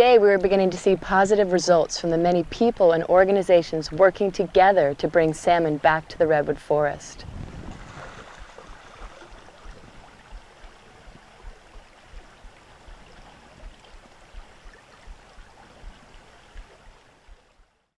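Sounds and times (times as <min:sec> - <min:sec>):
creek rushing: 0:06.7 - 0:17.6
wind buffeting microphone: 0:06.9 - 0:17.5.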